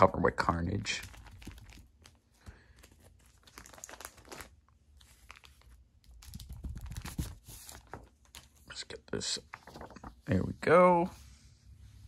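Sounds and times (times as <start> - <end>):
plastic bag rustling and crackling: 0.9 - 7.9.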